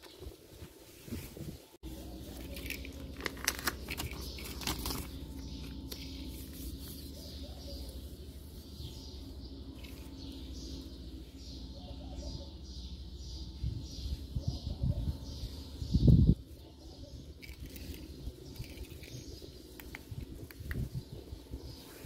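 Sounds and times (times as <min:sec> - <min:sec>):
paper rustling: 0:00.6 - 0:07.4
low hum: 0:01.4 - 0:22.0
bird chirps: 0:03.7 - 0:22.0.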